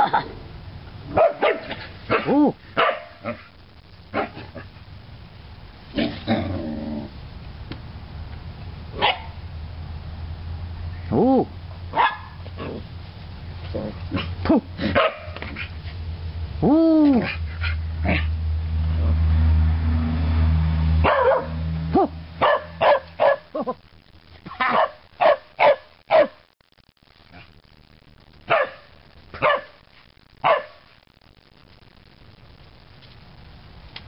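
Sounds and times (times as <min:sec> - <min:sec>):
low steady rumble: 0:00.0 - 0:24.2
dogs barking: 0:01.1 - 0:03.5, 0:09.0 - 0:09.4, 0:11.9 - 0:12.8, 0:14.1 - 0:15.7, 0:21.0 - 0:21.6, 0:22.4 - 0:23.5, 0:24.7 - 0:26.4, 0:28.5 - 0:29.8, 0:30.4 - 0:30.8
dog yelping: 0:21.0 - 0:21.5.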